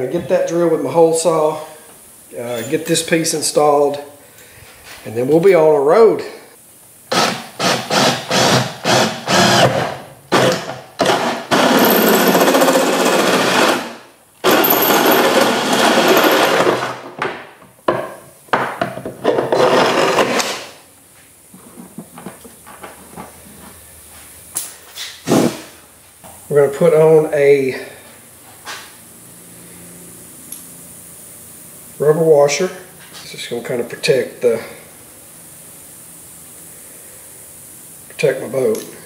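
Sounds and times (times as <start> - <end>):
drill with hole saw cutting: 7.1 - 17.1, 19.3 - 20.7.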